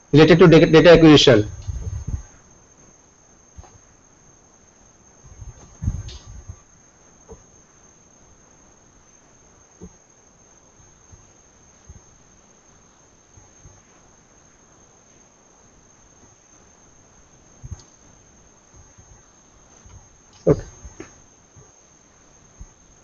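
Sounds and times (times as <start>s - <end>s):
steady high-pitched whine: 0.0s - 23.0s
soft low thumps: 1.5s - 2.3s, 5.3s - 6.6s.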